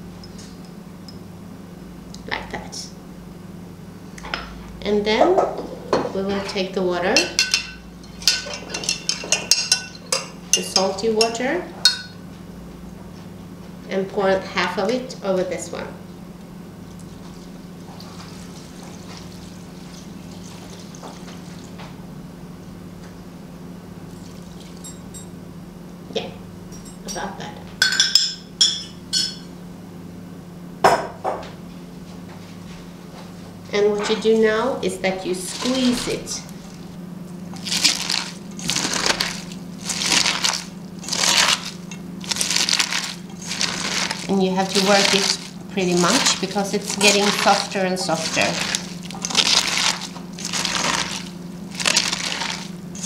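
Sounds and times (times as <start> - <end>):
hands squeezing wet cabbage: 17.0 - 21.8, 35.3 - 53.0.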